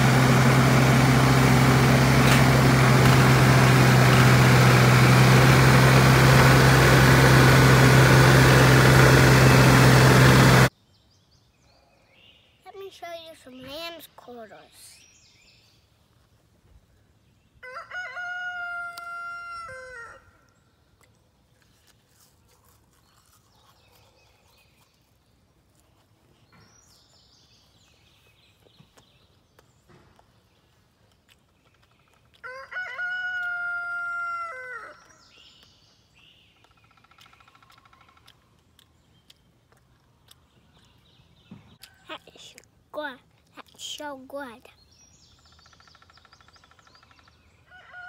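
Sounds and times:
rooster crowing: 0:17.6 - 0:20.4, 0:32.4 - 0:35.1, 0:47.7 - 0:48.0.

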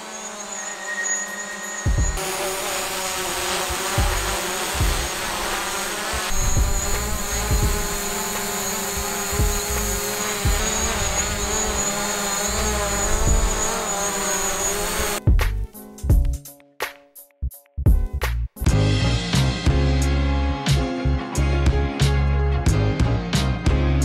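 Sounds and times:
drone propellers buzzing: 0:00.0 - 0:15.2
dull low thumps: 0:06.4 - 0:08.0.

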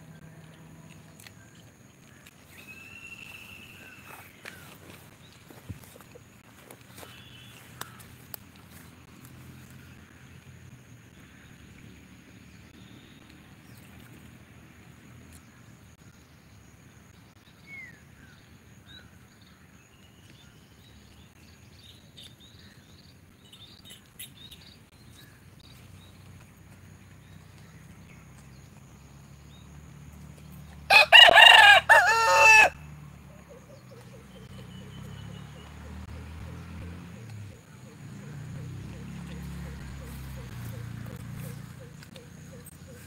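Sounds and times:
rooster crowing: 0:30.9 - 0:32.8.

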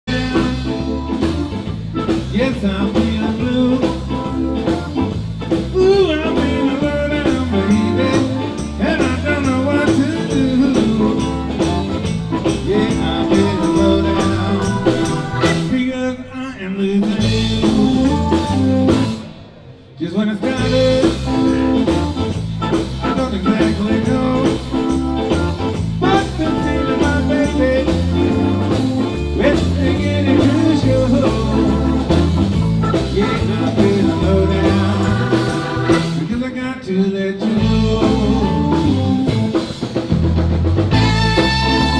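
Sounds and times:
live blues band playing: 0:00.1 - 0:41.9
person singing: 0:05.7 - 0:19.2, 0:23.0 - 0:25.3, 0:26.0 - 0:39.6.

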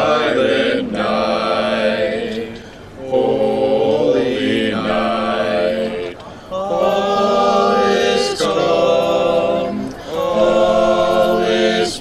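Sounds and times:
group of voices singing a carol: 0:00.0 - 0:12.0.

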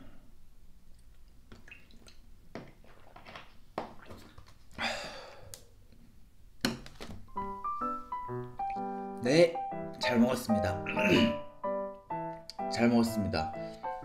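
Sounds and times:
breathy exhale: 0:04.8 - 0:05.6.

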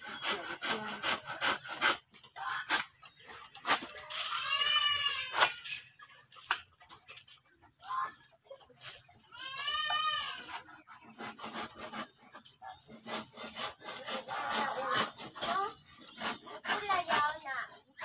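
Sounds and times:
goat bleating: 0:04.1 - 0:05.7, 0:09.3 - 0:10.6.

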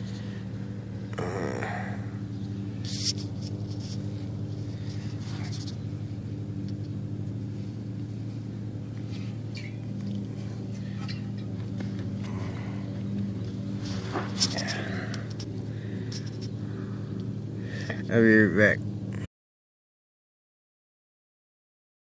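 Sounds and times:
steady low hum: 0:00.0 - 0:19.3
brief rustling: 0:13.7 - 0:16.6.

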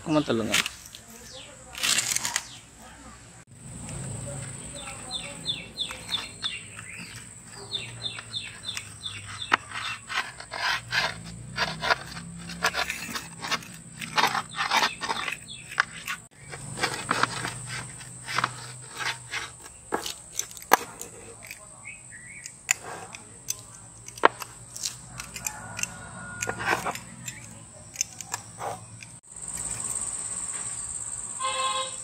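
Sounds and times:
bird chirping: 0:03.6 - 0:22.7
pizza cutter crunching through crust: 0:04.7 - 0:28.9.

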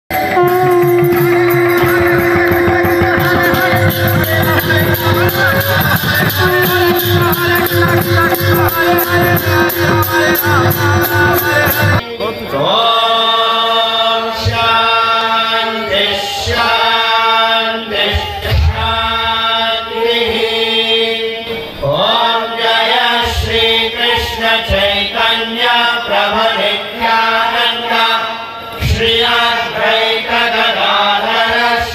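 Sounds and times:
hand drums: 0:00.1 - 0:12.0
harmonium: 0:00.1 - 0:18.2
people singing: 0:00.1 - 0:31.9
group chanting in unison: 0:08.2 - 0:31.9.

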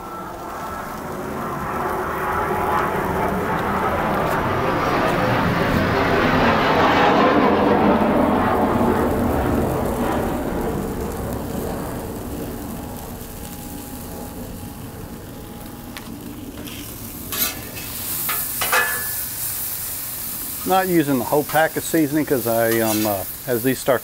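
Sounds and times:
meat sizzling on a griddle: 0:00.0 - 0:04.4, 0:08.7 - 0:24.0
low rumble: 0:00.0 - 0:17.8
metal spatula scraping griddle: 0:16.6 - 0:19.5, 0:21.3 - 0:23.3.

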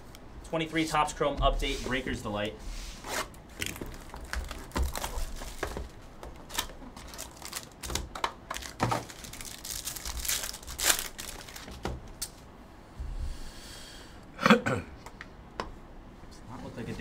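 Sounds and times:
plastic wrapping crinkling and tearing: 0:03.5 - 0:12.4.

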